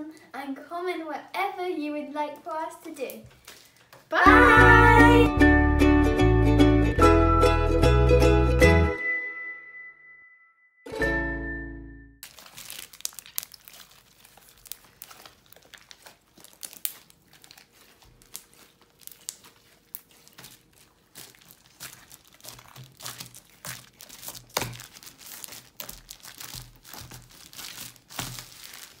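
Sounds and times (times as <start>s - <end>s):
plastic sheet crinkling: 12.2s - 29.0s
slime squeezed by hand: 12.2s - 29.0s.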